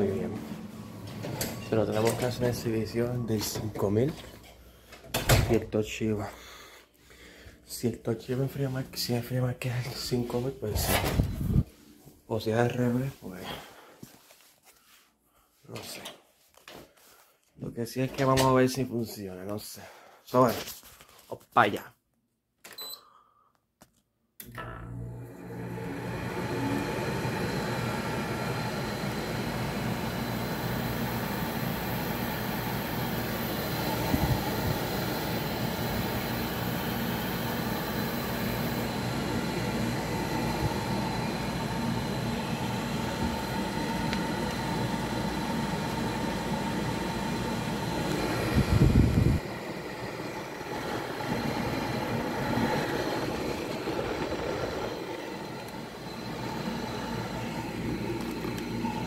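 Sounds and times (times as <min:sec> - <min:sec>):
air conditioner humming: 0:00.0 - 0:14.0, 0:25.8 - 0:59.0.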